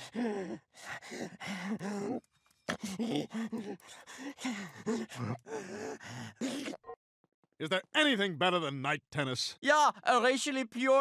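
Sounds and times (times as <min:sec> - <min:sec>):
cartoon voice gasping and groaning: 0:00.0 - 0:06.8.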